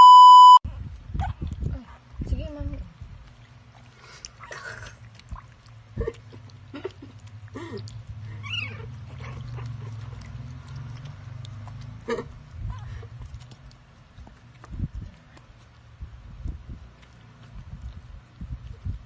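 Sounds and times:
low steady hum: 0.0s - 19.0s
puppies squeaking and whimpering: 8.2s - 9.3s.

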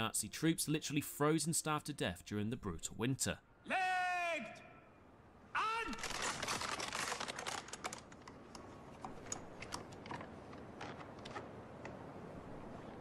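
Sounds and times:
rifle bolts clicking and rattling: 6.0s - 11.5s.

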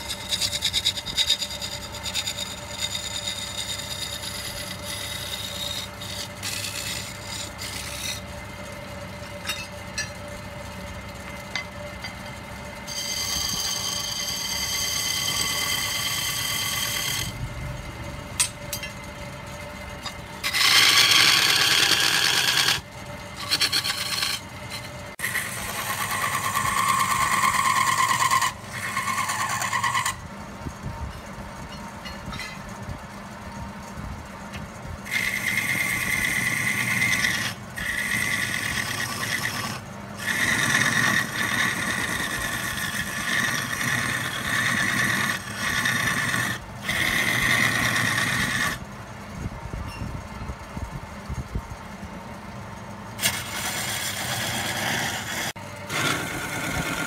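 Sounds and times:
turning tool scraping wood: 0.0s - 9.8s, 11.1s - 17.4s, 20.0s - 30.2s, 35.0s - 48.8s, 53.2s - 57.0s
lathe motor humming: 0.0s - 30.4s, 35.0s - 48.9s, 53.2s - 57.0s.

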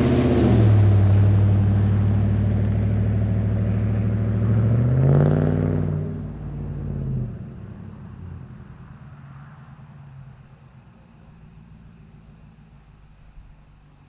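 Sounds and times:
pickup truck rumble: 0.0s - 9.1s
crickets chirping: 0.1s - 14.0s.

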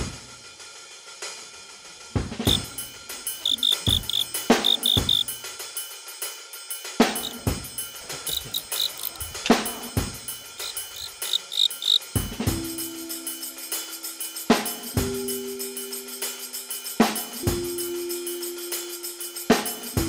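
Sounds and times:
percussion music with heavy drums: 0.0s - 20.0s
cricket chirping: 2.5s - 5.4s, 7.0s - 12.2s.

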